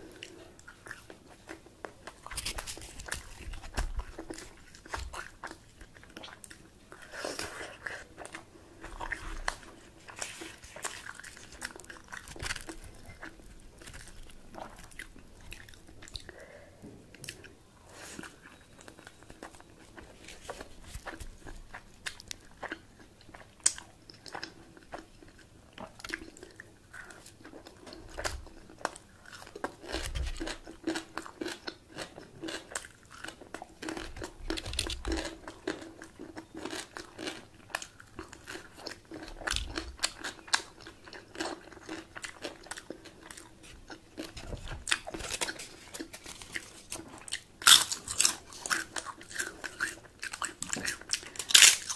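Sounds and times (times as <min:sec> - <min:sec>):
person chewing food: 0:00.0 - 0:51.9.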